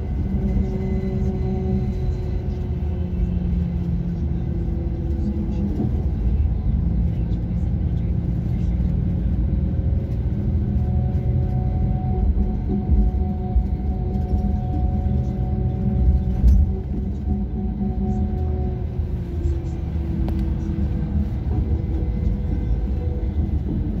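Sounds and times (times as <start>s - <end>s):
vehicle engine and tyre rumble: 0.0s - 24.0s.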